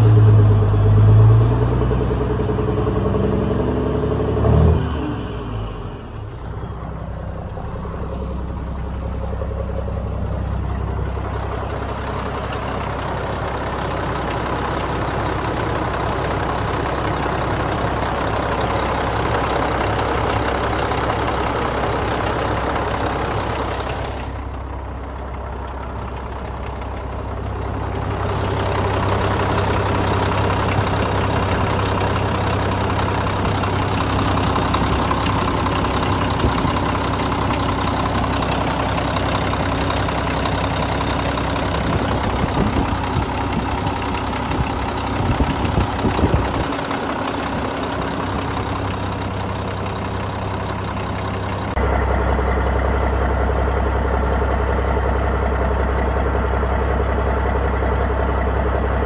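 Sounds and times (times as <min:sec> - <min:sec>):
diesel truck engine idling: 0:00.0 - 0:59.0
deep low hum: 0:23.7 - 0:59.0.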